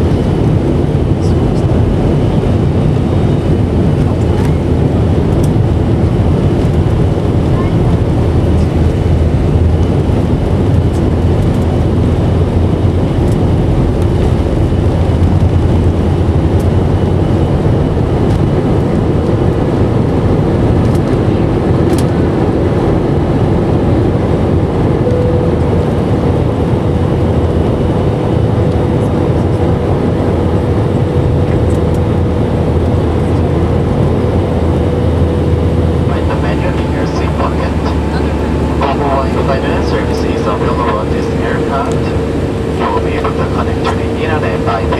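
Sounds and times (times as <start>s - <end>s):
jet engines roaring in cabin: 0.0s - 44.9s
steady hum: 0.0s - 44.9s.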